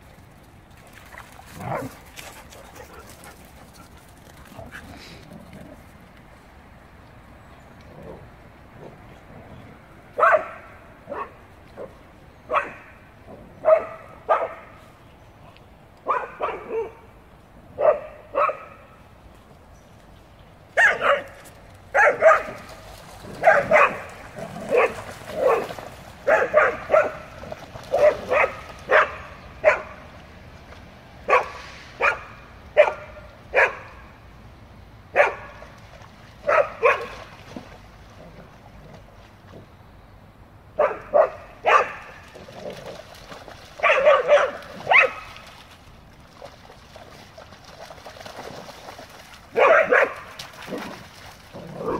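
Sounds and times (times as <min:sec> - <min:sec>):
dog barking: 0:10.2 - 0:11.4, 0:12.5 - 0:12.8, 0:13.6 - 0:14.6, 0:16.1 - 0:17.0, 0:17.8 - 0:18.8, 0:20.8 - 0:21.3, 0:22.0 - 0:22.6, 0:23.4 - 0:24.0, 0:24.7 - 0:25.7, 0:26.3 - 0:27.2, 0:27.9 - 0:29.9, 0:31.3 - 0:33.9, 0:35.2 - 0:35.5, 0:36.5 - 0:37.1, 0:40.8 - 0:42.0, 0:43.8 - 0:45.2, 0:49.6 - 0:50.2.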